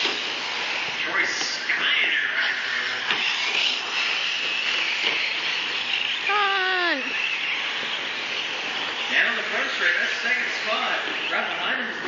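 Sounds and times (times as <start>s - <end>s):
rc truck motors whirring: 0.0s - 12.0s.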